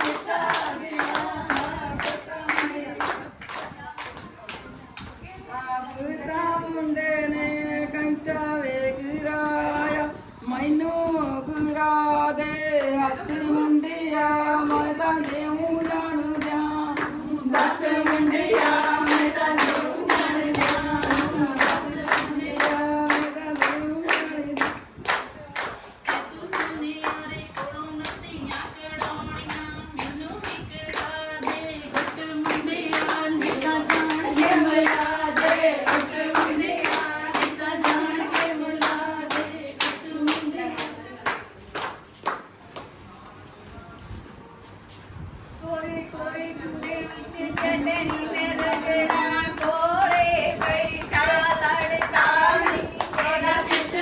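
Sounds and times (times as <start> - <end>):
group singing folk song: 0.0 - 3.3, 12.1 - 24.8, 30.9 - 41.2, 46.0 - 54.0
steady hand clapping: 0.0 - 5.2, 14.6 - 43.0, 46.7 - 54.0.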